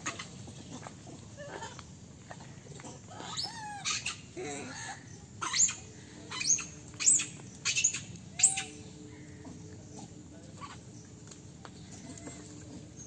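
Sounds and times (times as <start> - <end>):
monkeys squealing: 3.0 - 8.8.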